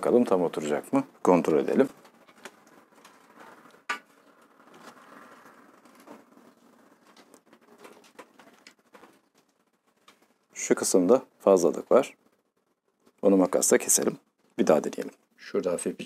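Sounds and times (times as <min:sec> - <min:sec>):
plastic scraping: 0:01.9 - 0:10.5.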